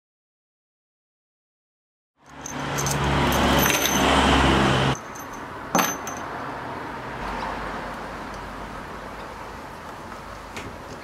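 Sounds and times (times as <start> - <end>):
metallic clink: 2.2 - 4.1, 4.9 - 6.3
loud mechanical hum: 2.2 - 11.0.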